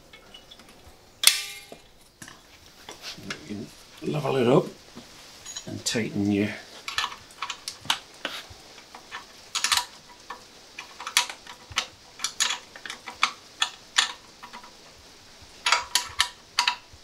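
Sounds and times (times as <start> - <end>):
metal tool clinks: 5.4 - 5.8.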